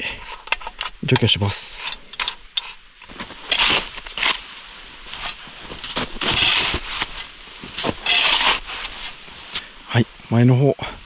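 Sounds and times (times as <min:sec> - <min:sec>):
shovel scraping snow: 0:01.6 - 0:09.6.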